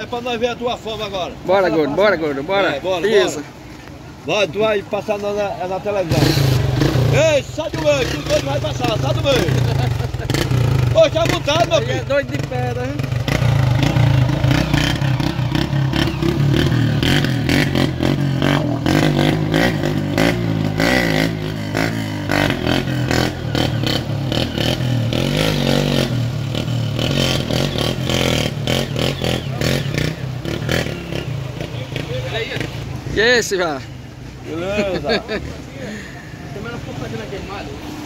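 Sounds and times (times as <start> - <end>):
motorcycle engine revving: 5.9 - 33.4.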